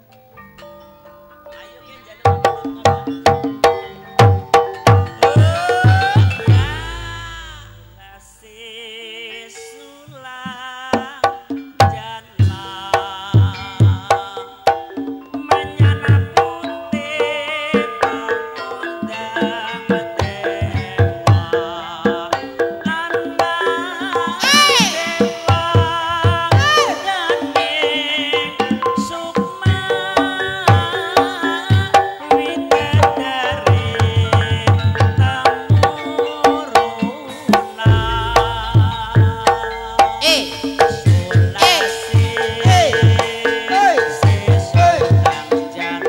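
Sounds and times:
ringing metallophone notes: 0:00.4 - 0:08.6, 0:13.6 - 0:46.0
hand drum strikes: 0:02.3 - 0:08.0, 0:24.2 - 0:29.9, 0:32.8 - 0:45.6
high wavering melody: 0:24.1 - 0:29.2, 0:37.3 - 0:44.0
deep low hum: 0:37.9 - 0:40.2.

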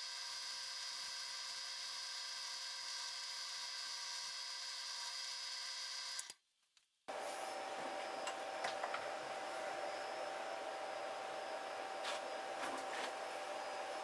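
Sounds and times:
drill press abrasive wheel whine: 0:07.1 - 0:14.0.

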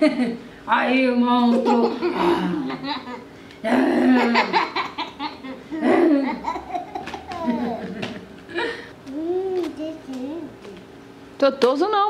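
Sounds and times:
toddler girl laughing: 0:04.0 - 0:08.6.

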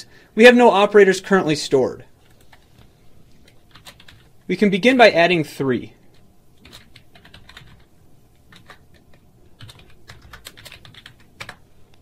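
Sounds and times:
computer keyboard typing: 0:02.2 - 0:04.4, 0:06.1 - 0:11.7.

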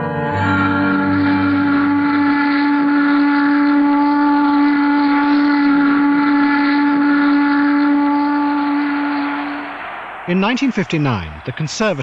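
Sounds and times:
loud long whistle tone: 0:00.0 - 0:10.9.

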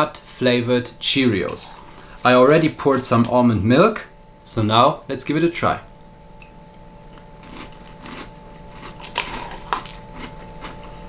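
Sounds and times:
cereal crunching while chewed: 0:07.1 - 0:11.0.

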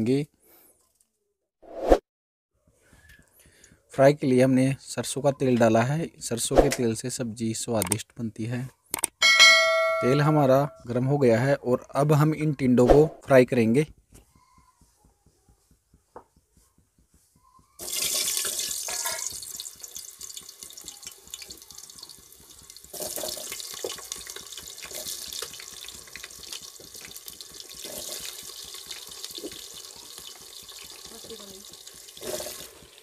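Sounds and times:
vegetables sizzling in hot oil: 0:17.8 - 0:33.0.

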